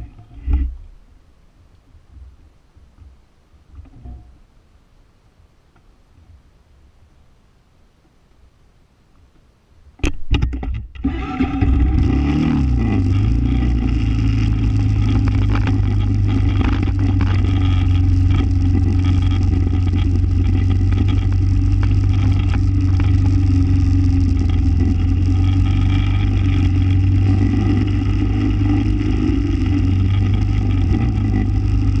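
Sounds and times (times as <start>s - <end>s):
small engine starting and revving: 11.0s - 32.0s.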